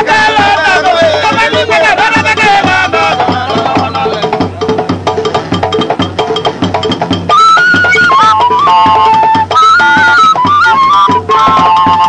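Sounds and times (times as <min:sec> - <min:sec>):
percussion beat: 0:00.0 - 0:12.0
held melody line: 0:05.9 - 0:12.0.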